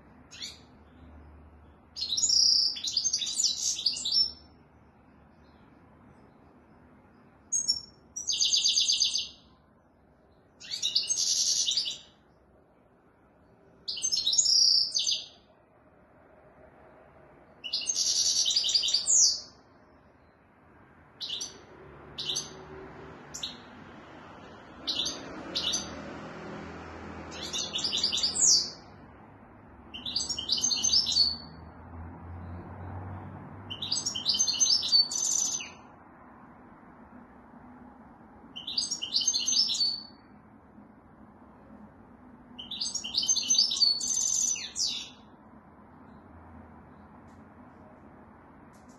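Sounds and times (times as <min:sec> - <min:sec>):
goldfinch twittering song: 0:00.3 - 0:00.7, 0:02.0 - 0:04.5, 0:07.5 - 0:09.5, 0:10.6 - 0:12.2, 0:13.9 - 0:15.4, 0:17.6 - 0:19.6, 0:21.2 - 0:21.6, 0:22.2 - 0:22.6, 0:24.8 - 0:25.9, 0:27.3 - 0:28.8, 0:29.9 - 0:31.6, 0:33.7 - 0:35.8, 0:38.6 - 0:40.2, 0:42.6 - 0:45.2.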